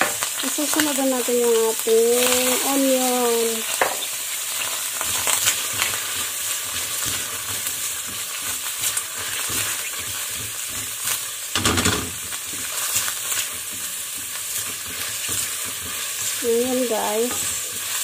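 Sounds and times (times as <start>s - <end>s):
garlic and onion sizzling in oil: 0.0s - 18.0s
spatula scraping a pan: 3.7s - 18.0s.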